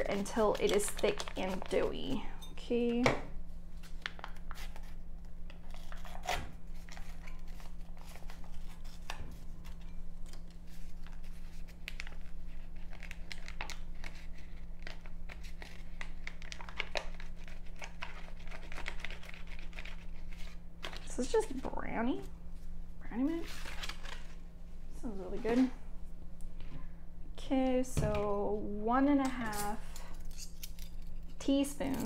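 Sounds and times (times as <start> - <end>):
paper pouch tearing and crinkling: 5.6 - 9.1, 10.3 - 21.0.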